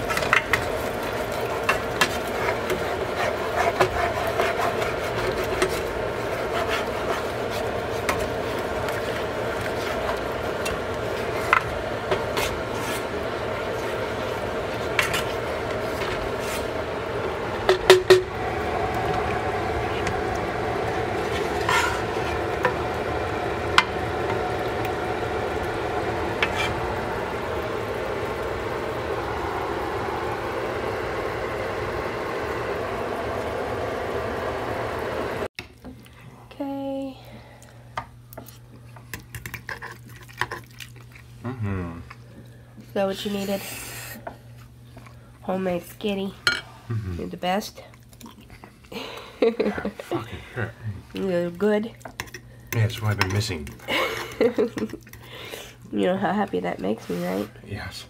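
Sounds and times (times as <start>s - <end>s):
sauce bubbling and sizzling: 0.0s - 35.5s
steady hum: 0.0s - 58.0s
spatula scraping sauce in a pan: 1.4s - 11.6s, 21.3s - 22.4s, 39.2s - 40.6s.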